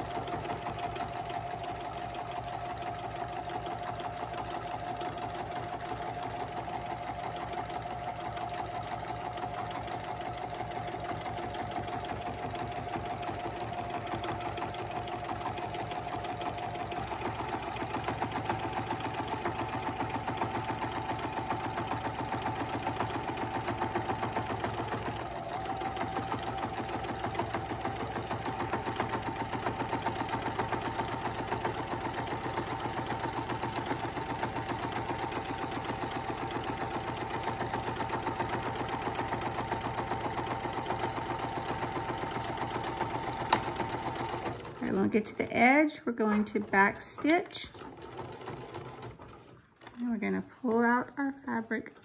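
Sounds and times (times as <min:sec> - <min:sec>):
sewing machine stitching: 0:00.0 - 0:52.0.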